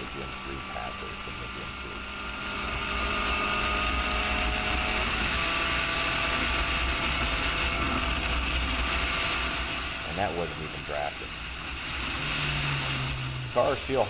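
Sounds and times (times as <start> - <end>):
race car engine running hard: 0.0 - 14.0.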